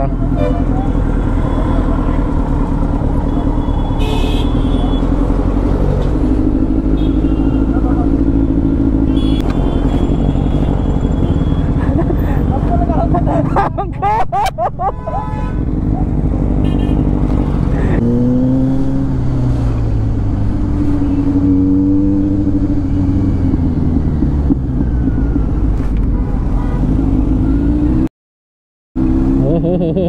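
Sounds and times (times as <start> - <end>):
motorcycle engine revving: 0.0 - 12.8, 15.6 - 25.8.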